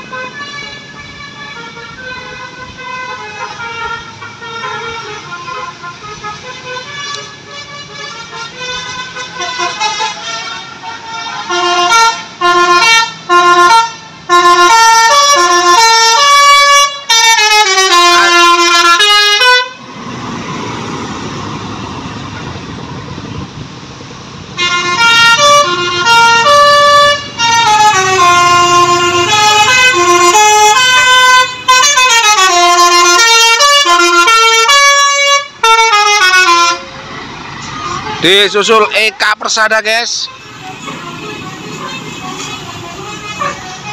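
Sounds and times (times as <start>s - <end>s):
bus engine and tyres passing: 0.0s - 43.9s
multi-tone air horn tune: 1.6s - 19.8s, 24.6s - 36.9s, 40.0s - 43.9s.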